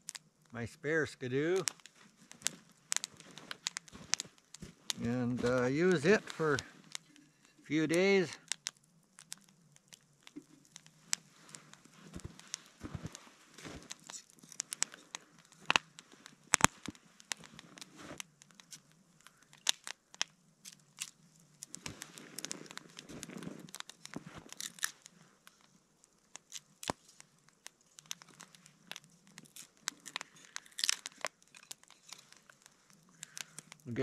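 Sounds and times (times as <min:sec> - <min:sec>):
wood fire crackling and popping: 0:00.0 - 0:34.0
footsteps crunching in snow: 0:01.9 - 0:06.9, 0:11.2 - 0:18.2, 0:21.8 - 0:25.0.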